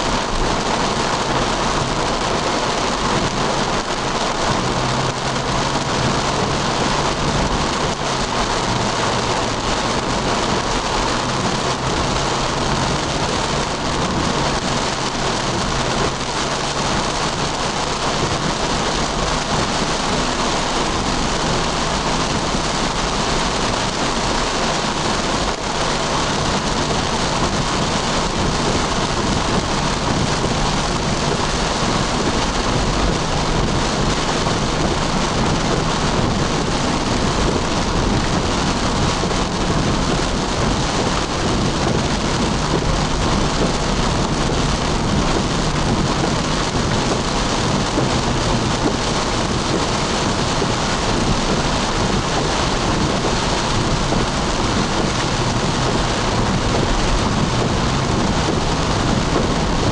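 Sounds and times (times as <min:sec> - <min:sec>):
heavy rain on a car roof: 0:00.0 - 0:59.9.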